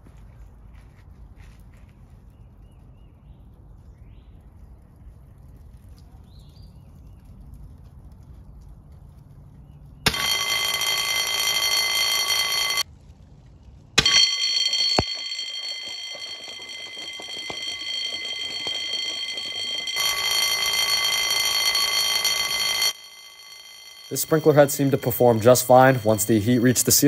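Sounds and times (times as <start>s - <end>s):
alarm bell ringing: 10.1s - 12.8s, 14.0s - 27.0s.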